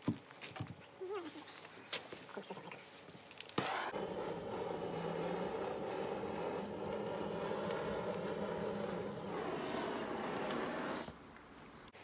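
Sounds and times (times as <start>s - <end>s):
gas torch hissing: 3.5s - 11.2s.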